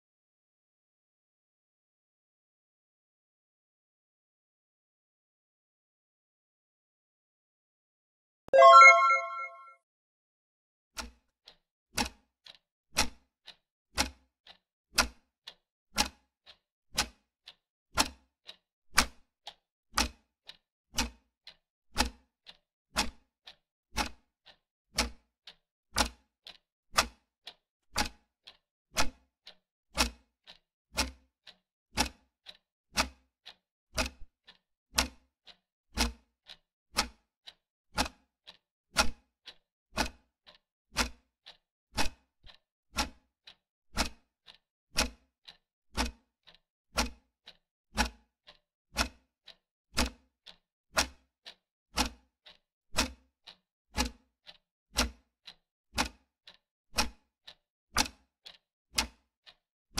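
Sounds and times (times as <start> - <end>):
clock ticking: 8.6 - 9.6, 20.0 - 21.2, 25.0 - 25.2, 26.0 - 27.2, 30.0 - 31.2, 32.0 - 32.3, 33.0 - 35.2, 37.0 - 37.2, 38.0 - 38.6, 39.5 - 51.3, 52.0 - 54.2, 55.0 - 59.6.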